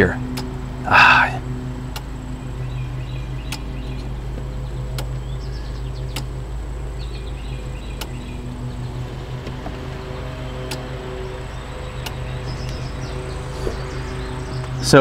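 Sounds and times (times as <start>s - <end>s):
steady low hum: 0.0s - 15.0s
relay clicking: 6.0s - 6.4s, 7.9s - 8.6s, 10.6s - 11.0s, 11.9s - 12.9s.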